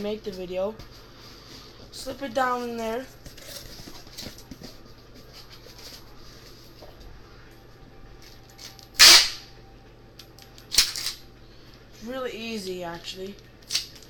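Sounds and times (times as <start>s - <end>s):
packing tape ripping off roll: 9.0s - 9.4s.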